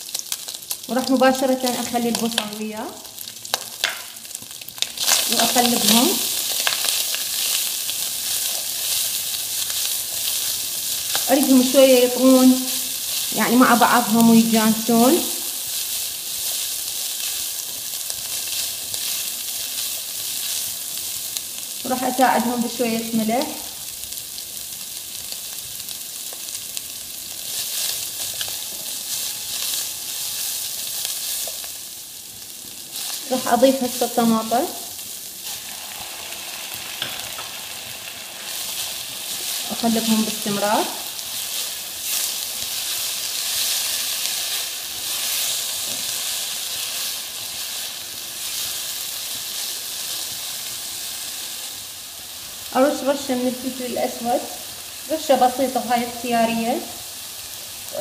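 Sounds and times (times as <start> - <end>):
meat and onion sizzling: 0.0 - 58.0
spatula stirring in a pot: 5.0 - 14.6.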